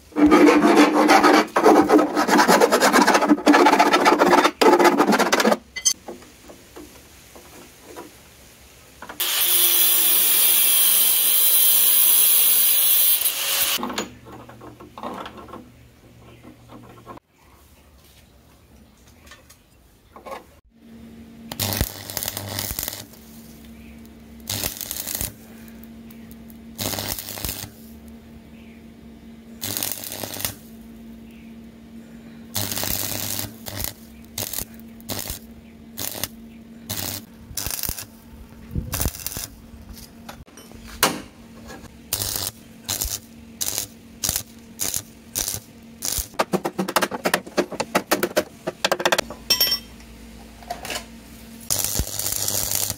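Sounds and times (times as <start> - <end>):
arc welder crackling: 9.1 - 13.9, 21.4 - 28.2, 29.6 - 31.2, 32.5 - 40.5, 41.8 - 49.3, 51.3 - 52.9
steady low hum: 13.8 - 52.9.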